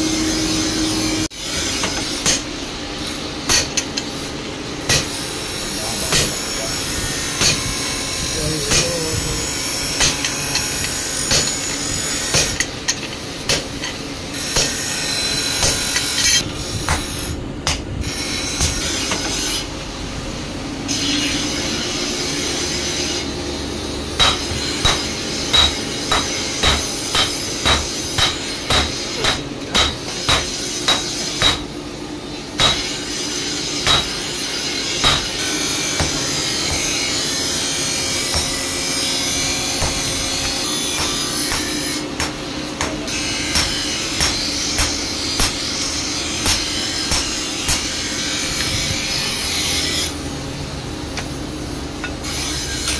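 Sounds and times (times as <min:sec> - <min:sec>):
steady background noise: 0:00.0 - 0:52.9
hammer striking steel on anvil: 0:01.5 - 0:02.5, 0:03.5 - 0:04.1, 0:04.8 - 0:05.3, 0:05.9 - 0:06.8, 0:07.4 - 0:07.7, 0:08.7 - 0:09.1, 0:09.9 - 0:19.4, 0:24.2 - 0:31.8, 0:32.6 - 0:33.0, 0:33.8 - 0:48.1.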